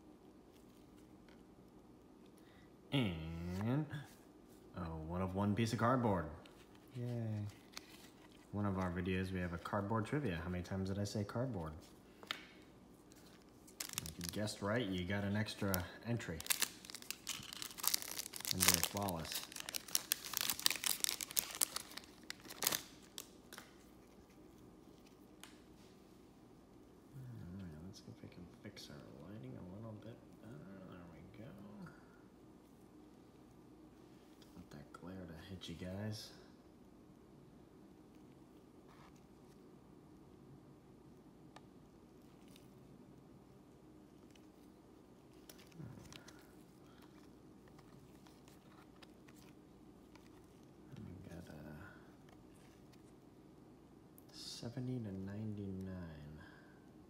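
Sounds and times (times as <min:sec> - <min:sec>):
cards shuffling: 0:06.4 - 0:09.6, 0:11.6 - 0:25.7, 0:45.3 - 0:50.7
foil wrapper crinkling and tearing: 0:13.6 - 0:23.8.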